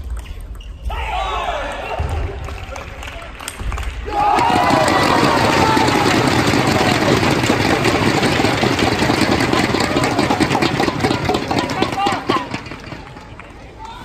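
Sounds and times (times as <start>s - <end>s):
crowd cheering and clapping: 0.9s - 14.0s
people shouting: 4.0s - 8.4s.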